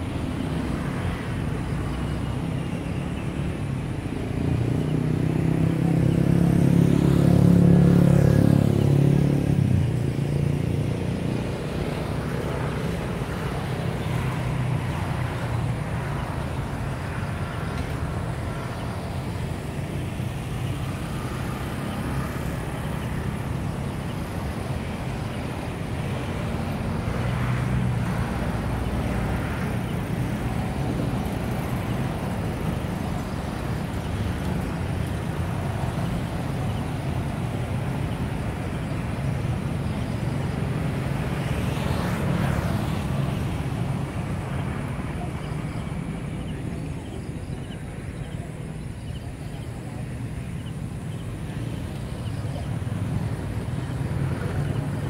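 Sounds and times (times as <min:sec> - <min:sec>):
distant city traffic rumble: 0:00.0 - 0:55.0
vehicles passing: 0:00.0 - 0:55.0.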